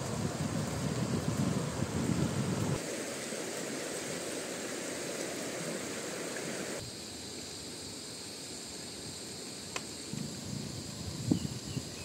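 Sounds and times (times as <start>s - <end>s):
river rushing over rocks: 0.0s - 6.8s.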